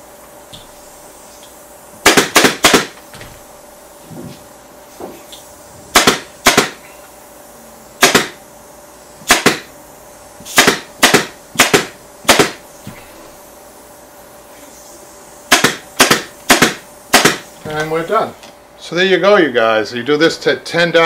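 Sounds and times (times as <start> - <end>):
pneumatic staple gun shots: 2.0 - 3.4, 5.3 - 6.8, 8.0 - 8.4, 9.2 - 9.7, 10.4 - 12.7, 15.5 - 17.6.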